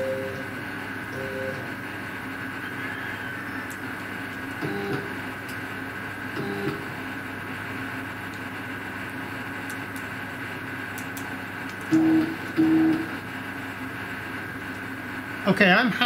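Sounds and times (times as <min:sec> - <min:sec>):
steady machine hum: 0:00.0 - 0:16.0
stepper motor whines: 0:04.6 - 0:05.2, 0:11.9 - 0:13.2.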